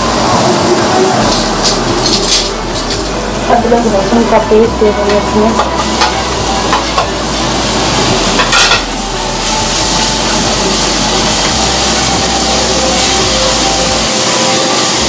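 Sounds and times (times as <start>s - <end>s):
oil sizzling: 0.0s - 15.0s
metal spoon clinking and scraping: 1.3s - 3.2s.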